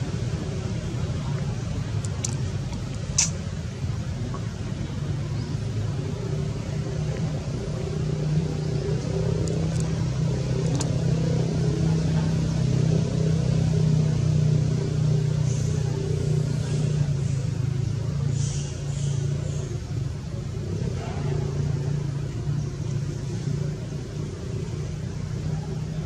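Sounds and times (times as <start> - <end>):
engine humming: 0.0 - 26.0
sharp click: 3.1 - 3.4.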